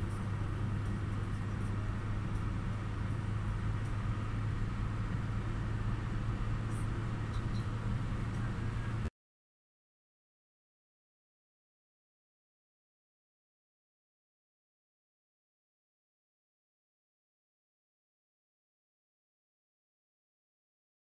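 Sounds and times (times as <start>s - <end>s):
car road and engine noise: 0.0s - 9.1s.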